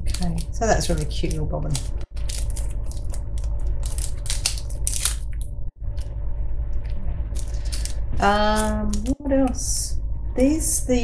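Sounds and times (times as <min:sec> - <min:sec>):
plastic wrapper crinkling: 0:00.0 - 0:05.5, 0:07.3 - 0:09.3
steady low hum: 0:00.0 - 0:11.0.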